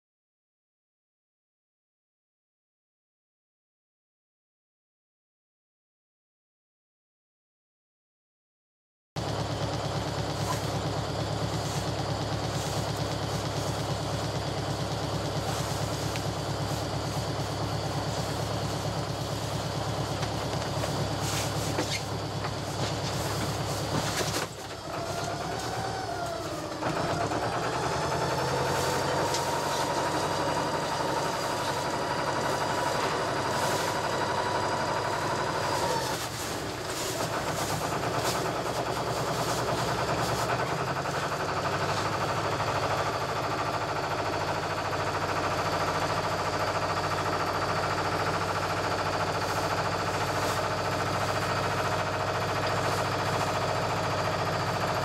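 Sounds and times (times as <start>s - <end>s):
marine diesel engine clattering: 9.2s - 55.0s
wavering high whine: 24.6s - 40.4s.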